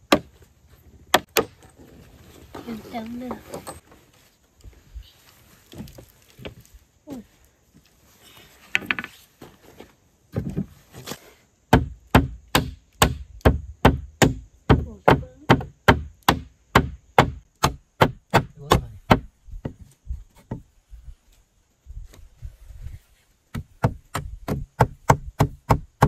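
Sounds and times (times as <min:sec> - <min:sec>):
hand tool striking wood: 0:00.0 - 0:00.3, 0:01.1 - 0:01.8, 0:11.7 - 0:20.7, 0:23.5 - 0:26.0.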